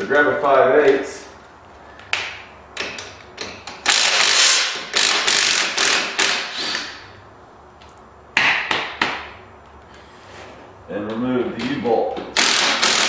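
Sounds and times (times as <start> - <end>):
socket wrench ratcheting: 2.8 - 6.9, 12.4 - 13.0.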